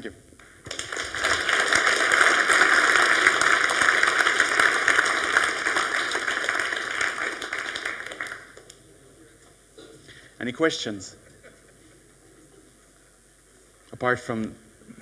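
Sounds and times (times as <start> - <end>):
audience applauding: 0.4 - 8.9.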